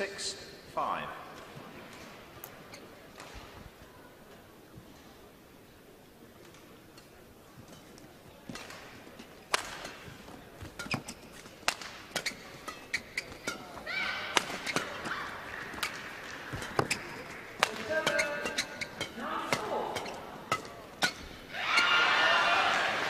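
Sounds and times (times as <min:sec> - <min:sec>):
crowd noise: 0:00.0 - 0:23.0
shoe squeaks on court: 0:02.6 - 0:03.0, 0:10.6 - 0:13.8, 0:14.4 - 0:21.9
racket striking shuttlecock: 0:08.5 - 0:10.1, 0:10.7 - 0:21.4.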